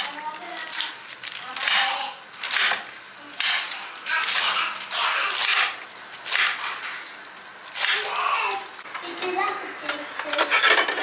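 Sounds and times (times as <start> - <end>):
knife chopping lettuce on board: 1.4 - 6.9.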